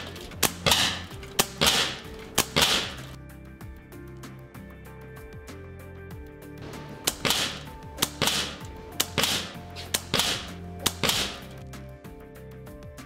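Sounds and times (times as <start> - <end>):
air rifle shots: 0.0 - 3.2, 6.6 - 11.6
background music: 0.0 - 13.0.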